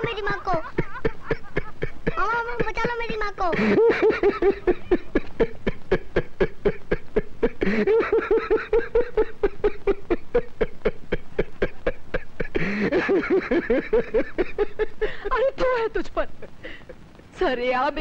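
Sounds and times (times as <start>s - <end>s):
man laughing heartily: 0.0s - 2.2s, 3.5s - 15.4s.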